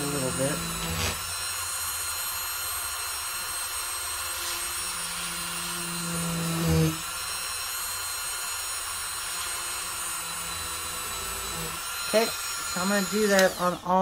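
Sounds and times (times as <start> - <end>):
lower hum: 0.0 - 1.3
rotary tool drilling whine: 0.0 - 14.0.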